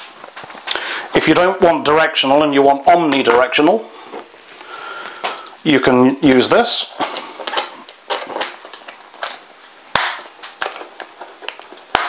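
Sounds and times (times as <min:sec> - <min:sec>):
antenna parts clicking and knocking: 0:07.1 - 0:12.0.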